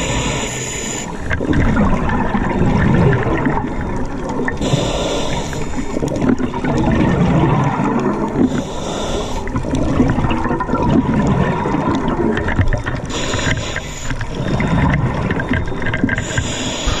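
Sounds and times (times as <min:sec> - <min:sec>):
hissing breaths through regulator: 0:00.0 - 0:01.3, 0:04.6 - 0:06.2, 0:08.4 - 0:09.8, 0:13.0 - 0:14.9, 0:16.1 - 0:17.0
underwater bubbles gurgling: 0:00.0 - 0:17.0.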